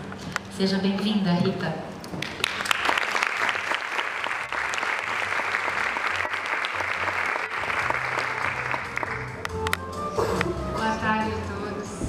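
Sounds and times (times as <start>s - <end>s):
audience applauding: 2.2s - 9.8s.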